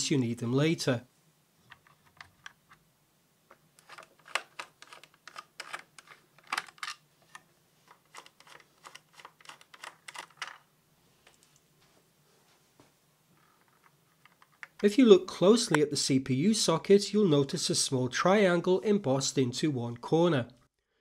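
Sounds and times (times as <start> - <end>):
screwdriver clicking on screws: 3.8 - 7.0, 7.9 - 10.6.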